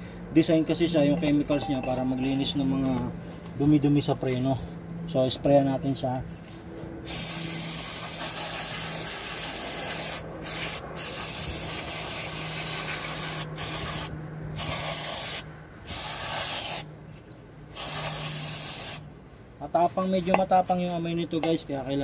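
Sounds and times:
aerosol can spraying hiss: 0:07.1 - 0:16.9, 0:17.8 - 0:19.0.

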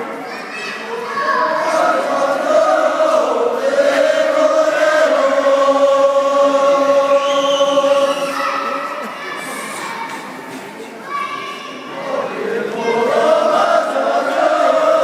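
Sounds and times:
men singing together: 0:01.7 - 0:08.3, 0:12.3 - 0:15.0.

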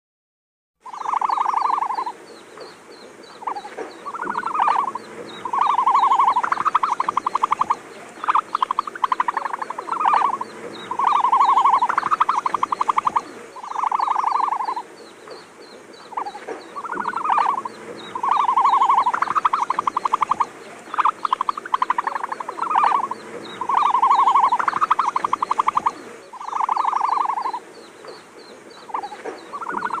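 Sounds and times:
animal-like calls and trills: 0:00.8 - 0:30.0
steady fast ticking: 0:03.2 - 0:15.4, 0:16.0 - 0:27.6.

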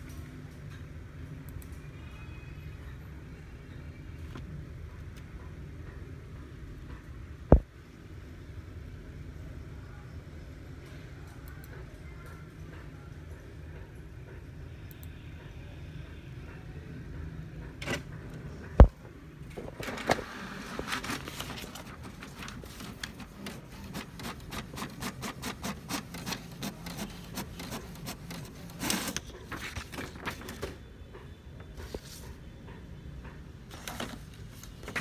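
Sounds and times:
printer whirring: 0:17.6 - 0:35.0
printer paper feed: 0:19.6 - 0:30.8
print carriage ticking: 0:19.8 - 0:31.4.

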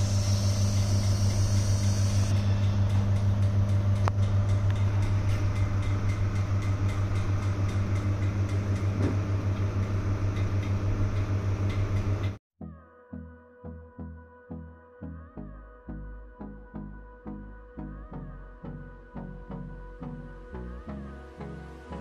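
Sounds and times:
pulsing electric pump hum: 0:00.0 - 0:12.4
music: 0:12.6 - 0:22.0.

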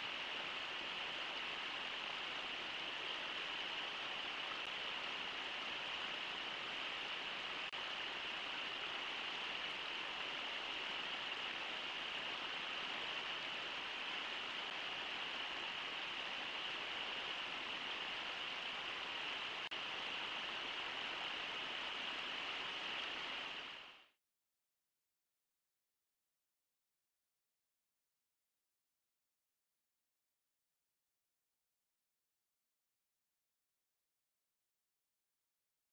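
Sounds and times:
river water rushing: 0:00.0 - 0:24.1.

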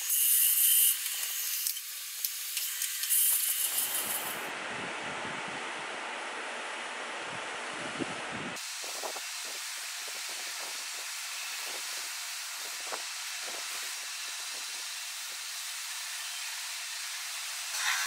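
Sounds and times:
sandpaper hissing on spinning wood: 0:00.0 - 0:04.5, 0:08.6 - 0:18.0.

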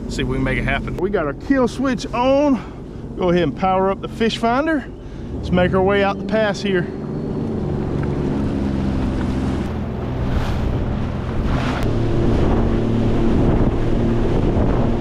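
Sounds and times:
jet ski engine running: 0:00.0 - 0:15.0
water rushing: 0:00.6 - 0:15.0
wind buffeting microphone: 0:01.1 - 0:15.0
water splashes: 0:04.0 - 0:15.0.

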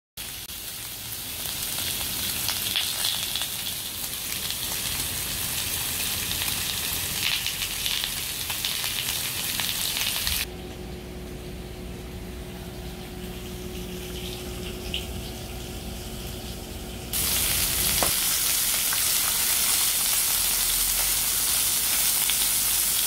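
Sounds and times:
meat sizzling on grill pan: 0:00.2 - 0:10.5, 0:17.1 - 0:23.0.

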